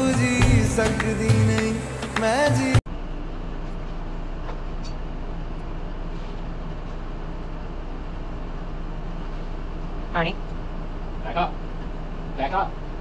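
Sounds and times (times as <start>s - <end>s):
music: 0.0s - 2.8s.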